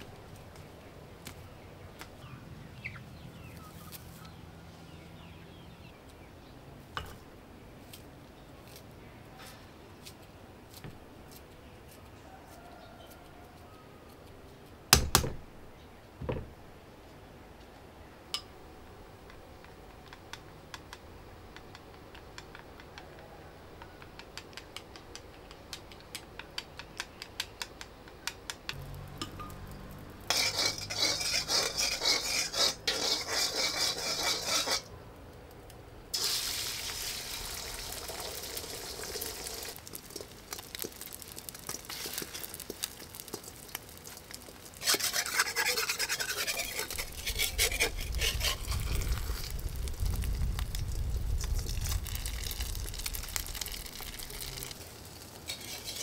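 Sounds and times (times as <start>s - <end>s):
clicks and knocks of handled objects: 19.2s - 29.7s.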